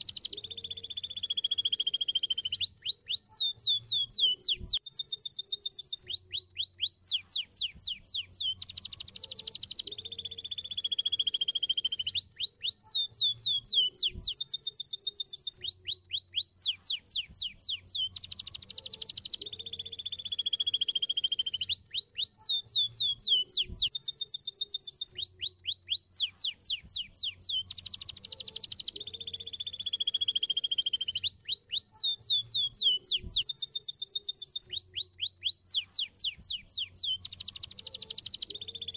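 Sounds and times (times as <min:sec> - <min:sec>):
canary singing trills: 0:00.0 - 0:38.9.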